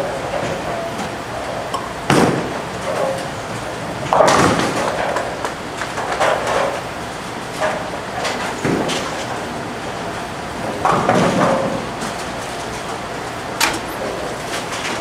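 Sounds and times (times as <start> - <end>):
rumble of rolling balls and pinsetters: 0.0 - 15.0
bowling pins crashing: 4.1 - 5.4.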